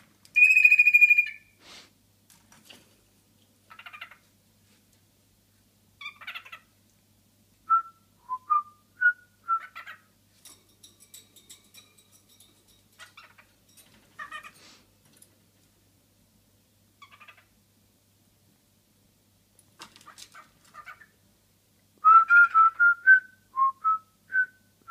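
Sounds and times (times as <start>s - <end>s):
cockatiel whistling: 0.4s - 1.4s.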